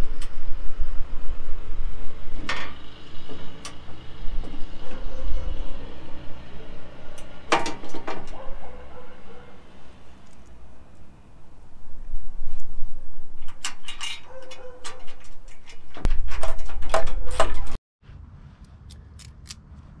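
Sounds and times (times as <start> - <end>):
plastic parts clicking and rattling: 13.4 - 17.8.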